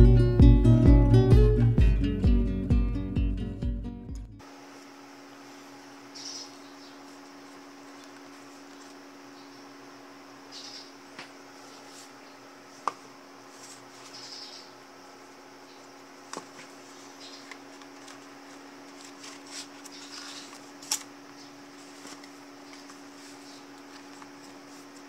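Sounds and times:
paper and cover rustling: 7.0 - 9.0, 13.5 - 14.4, 16.3 - 25.0.

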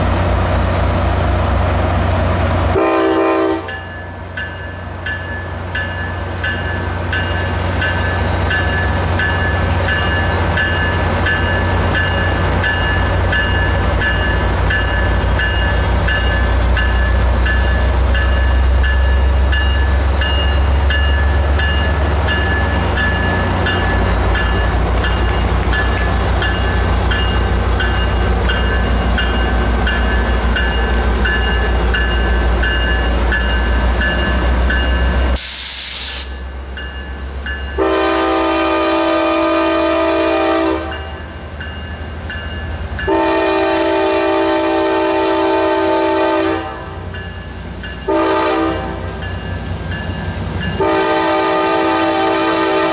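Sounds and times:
diesel locomotive engine droning: 0.0 - 52.9
locomotive bell ringing: 3.1 - 35.4, 36.3 - 39.8, 40.8 - 45.2, 45.8 - 51.7
sharp hiss of air: 35.4 - 36.4.

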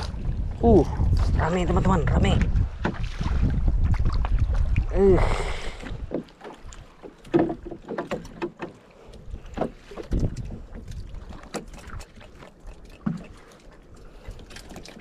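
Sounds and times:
knocks on a wooden canoe: 7.2 - 8.8, 9.4 - 10.8.

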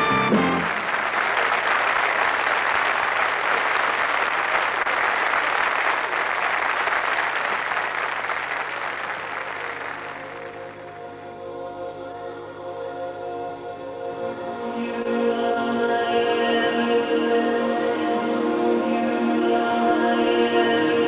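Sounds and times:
audience applauding: 0.0 - 11.2.

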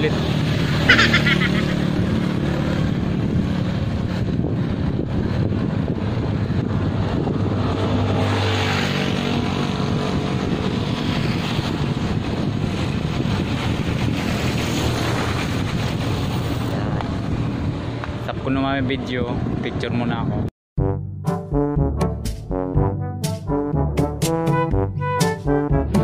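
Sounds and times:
passing vehicle engine hum: 0.0 - 18.4
wind rumbling on microphone: 0.0 - 20.5.

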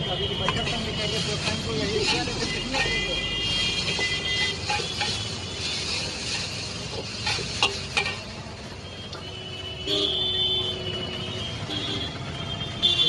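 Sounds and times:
steel ladle clanging against wok: 0.4 - 5.4, 6.1 - 8.4
noodles sizzling in a wok: 0.5 - 9.4.

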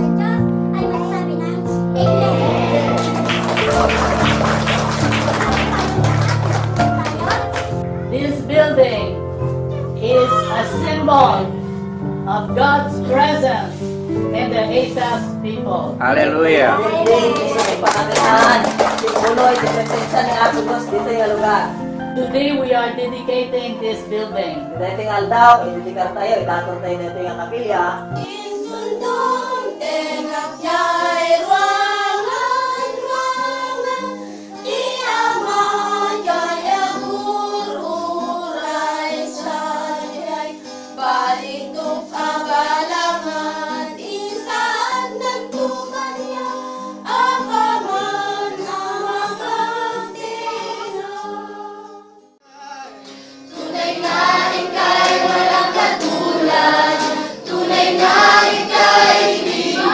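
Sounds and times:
acoustic guitar: 0.0 - 59.9
congregation singing: 2.0 - 9.1, 12.3 - 22.2, 28.1 - 52.4, 53.2 - 59.9
women singing a hymn: 16.8 - 52.3, 53.5 - 59.9.

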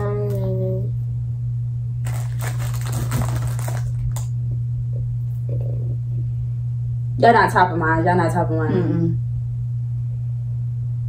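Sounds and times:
steady low hum: 0.0 - 11.0
plastic crinkling and clicks: 2.0 - 4.3.

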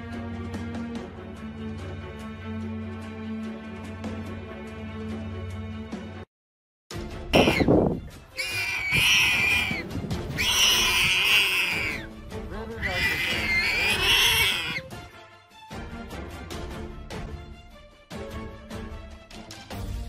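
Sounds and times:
background music: 0.0 - 6.3, 6.9 - 20.0
wild animal calls: 7.4 - 7.7, 8.3 - 12.1, 12.8 - 14.9.

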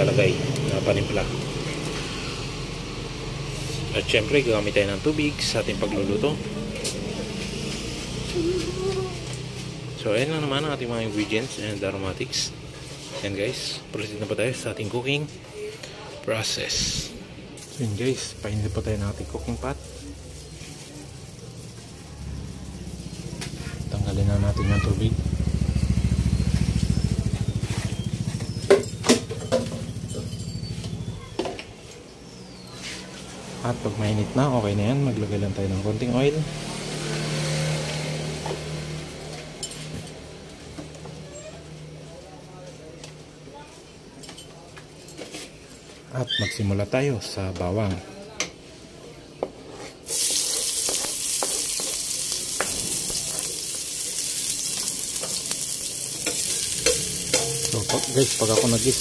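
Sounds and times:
garlic sizzling in hot oil: 17.6 - 28.3, 50.0 - 59.0
small engine pulsing: 24.6 - 31.2.

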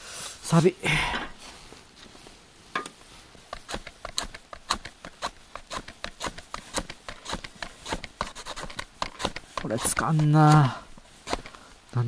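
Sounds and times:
match scraping against box: 3.6 - 10.7.

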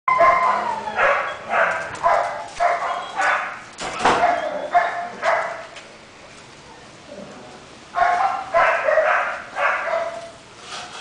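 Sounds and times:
dog barking high-pitched: 0.1 - 5.6, 8.0 - 10.3.

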